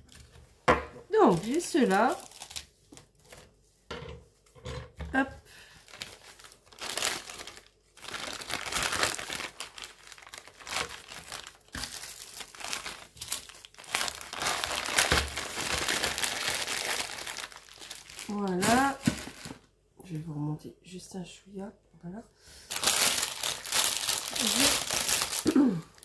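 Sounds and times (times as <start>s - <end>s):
packaging rustling and crinkling: 0.0s - 3.6s, 5.5s - 19.7s, 22.7s - 26.0s.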